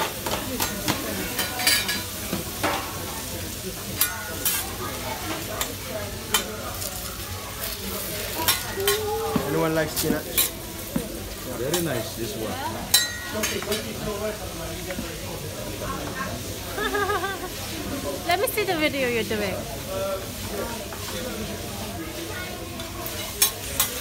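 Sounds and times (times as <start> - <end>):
greens sizzling on griddle: 0.0 - 24.0
metal spatulas clacking on steel: 4.0 - 4.6, 8.4 - 9.1, 12.9 - 13.9, 23.1 - 24.0.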